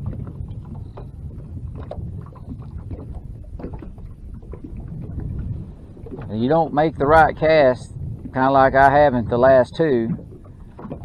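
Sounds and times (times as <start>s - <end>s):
light splashes and knocks: 0.0s - 6.4s, 10.1s - 11.0s
waves lapping against metal boat: 0.0s - 11.0s
wind rumbling on microphone: 0.0s - 11.0s.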